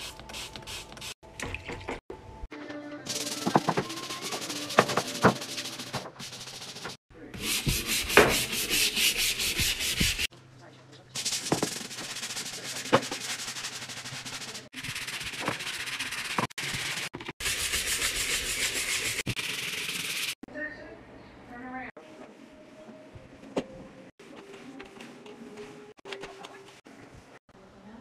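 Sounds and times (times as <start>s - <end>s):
scrub brush scrubbing tile: 3.1s - 10.3s, 11.2s - 20.4s.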